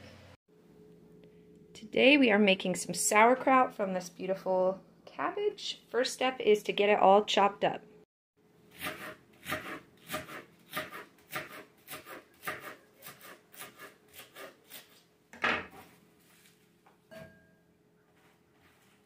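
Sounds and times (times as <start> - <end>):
knife slicing cabbage on board: 8.8 - 15.0.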